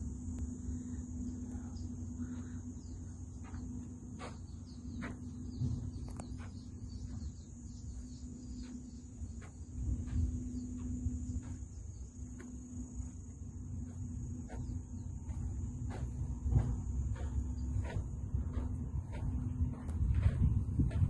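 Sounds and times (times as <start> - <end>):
high-pitched insect drone: 0.0 - 21.0
low steady hum: 0.0 - 21.0
bird chirps: 1.2 - 12.2.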